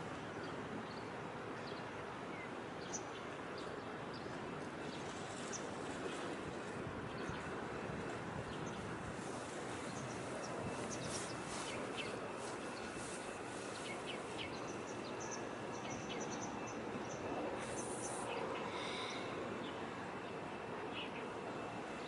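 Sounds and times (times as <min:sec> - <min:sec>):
background hiss and rumble: 0:00.0 - 0:22.0
small birds chirping: 0:09.8 - 0:19.8.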